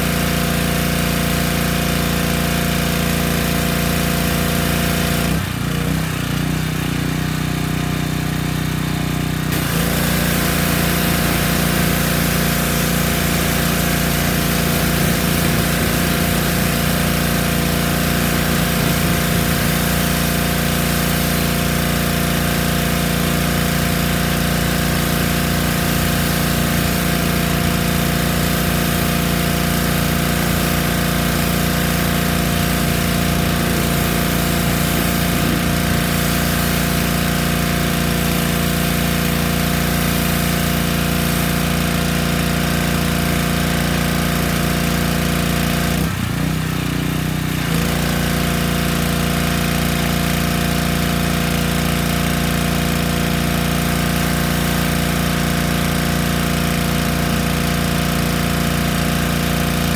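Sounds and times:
pressure washer engine running: 0.0 - 59.9
water jet hissing: 9.5 - 46.2.

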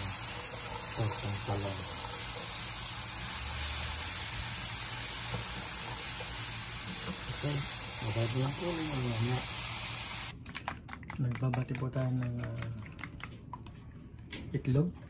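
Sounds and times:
vegetables sizzling in a pan: 0.0 - 10.3.

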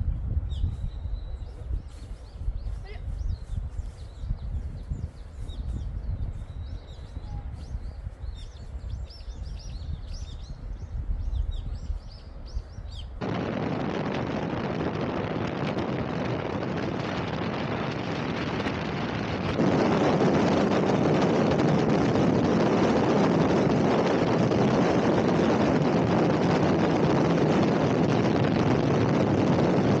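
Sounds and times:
wind and tyre noise: 0.0 - 30.0
wind rumble on microphone: 0.0 - 30.0
small birds chirping: 0.5 - 13.2.

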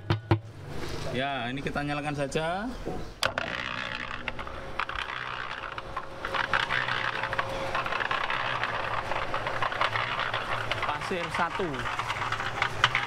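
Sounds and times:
concrete mixer drum rattling: 3.2 - 13.0
mixer motor whine: 3.3 - 13.0.

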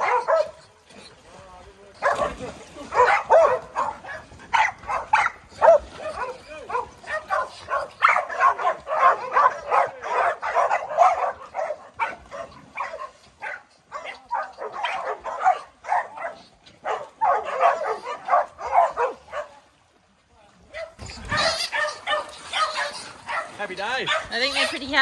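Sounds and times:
dogs barking and yipping: 0.0 - 1.2, 1.9 - 19.6, 20.7 - 25.0.

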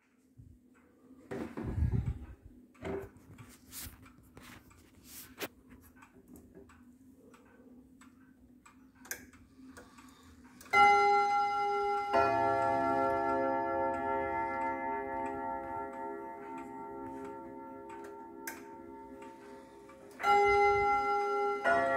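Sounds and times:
clock ticking faintly: 5.6 - 21.9
clock chime notes: 10.7 - 21.9.

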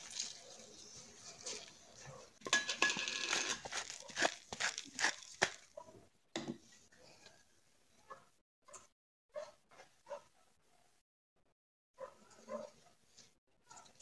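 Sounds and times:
plastic gloves crinkling: 3.0 - 5.7.

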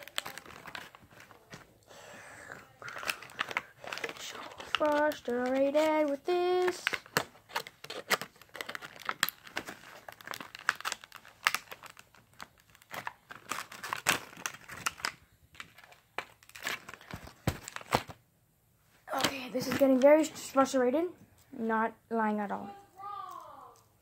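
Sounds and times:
plastic packaging crinkling: 0.0 - 1.7, 2.6 - 18.2.

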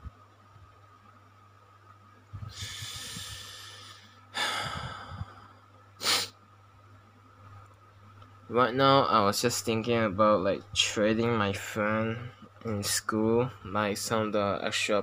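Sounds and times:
person breathing: 2.4 - 6.3.

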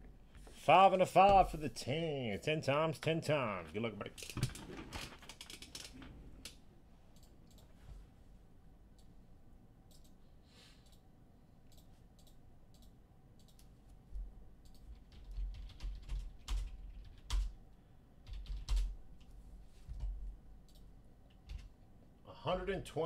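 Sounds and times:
typing on computer keyboard: 14.7 - 17.6, 18.2 - 18.9, 19.9 - 21.7.

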